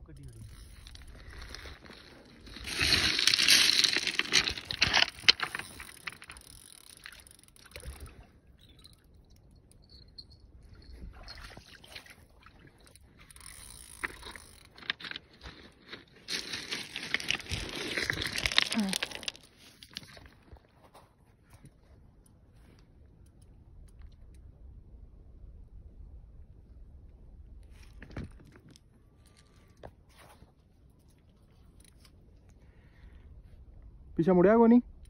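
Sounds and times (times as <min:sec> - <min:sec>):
footsteps crunching on pebbles: 0:00.7 - 0:06.4, 0:14.0 - 0:20.6.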